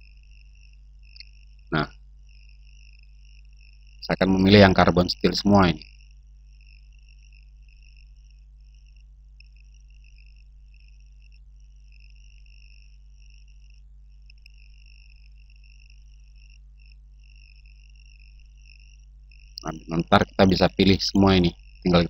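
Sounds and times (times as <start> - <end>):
low hum: 19.6 - 22.0.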